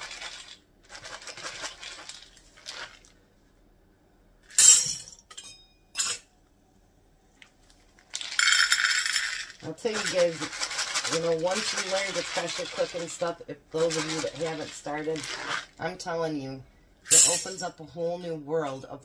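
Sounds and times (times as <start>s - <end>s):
beans rattling in plastic bottle: 0.0s - 3.1s, 8.0s - 15.8s
beans clattering into glass jar: 8.1s - 13.2s.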